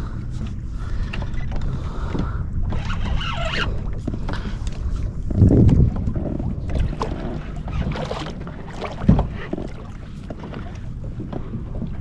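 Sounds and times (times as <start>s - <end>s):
water sloshing and splashing: 0.0s - 12.0s
wind on microphone: 0.0s - 12.0s
thump on kayak: 8.9s - 9.6s.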